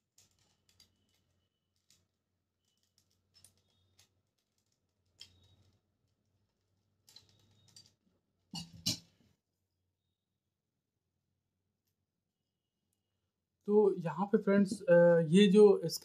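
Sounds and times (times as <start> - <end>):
plastic parts clicking and knocking: 0.0 - 9.2.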